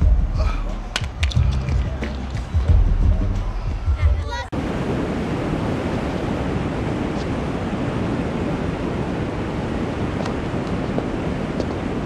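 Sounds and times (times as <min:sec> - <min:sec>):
river water rushing over falls: 0:04.6 - 0:12.0.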